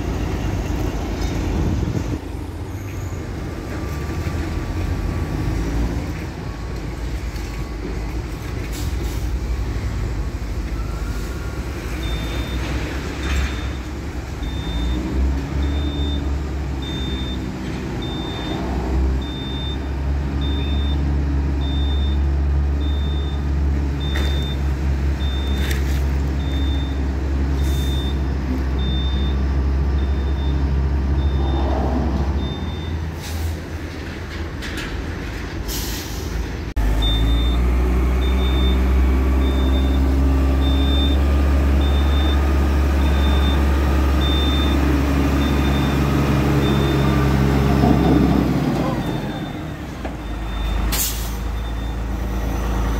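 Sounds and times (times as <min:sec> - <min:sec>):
diesel truck engine running: 0:00.0 - 0:34.5, 0:35.8 - 0:52.9
reversing alarm beeping: 0:10.8 - 0:12.8, 0:13.4 - 0:25.7, 0:26.4 - 0:28.2, 0:28.8 - 0:31.7, 0:32.4 - 0:33.1, 0:37.0 - 0:47.7, 0:49.0 - 0:52.4.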